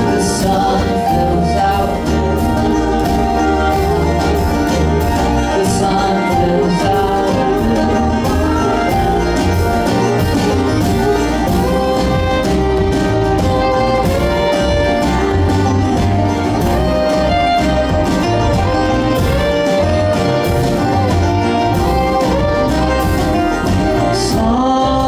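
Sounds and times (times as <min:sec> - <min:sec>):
bowed fiddle melody: 0:00.0 - 0:25.0
picked banjo: 0:00.0 - 0:25.0
strummed acoustic guitar: 0:00.0 - 0:25.0
upright bass: 0:00.0 - 0:25.0.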